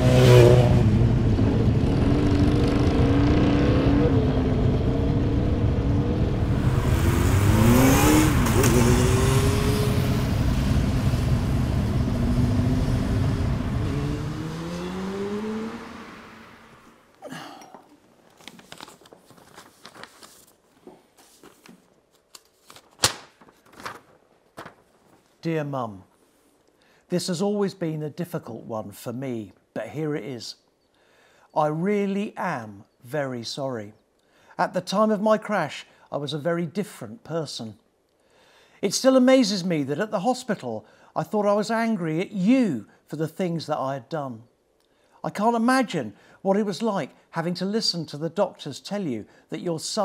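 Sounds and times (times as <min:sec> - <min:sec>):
motorcycle engine revving: 0:00.0 - 0:17.0
paper rustling: 0:18.2 - 0:25.4.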